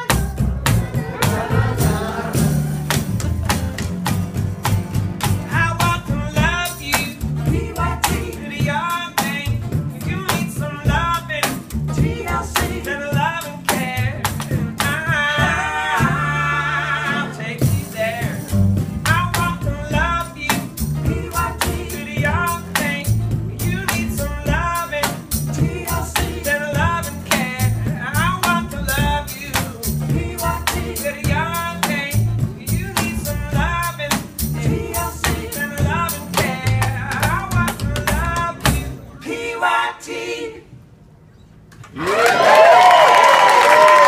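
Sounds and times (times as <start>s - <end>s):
acoustic guitars: 0.0s - 39.2s
upright bass: 0.0s - 39.2s
person singing lead vocal: 5.6s - 18.5s, 19.1s - 38.9s.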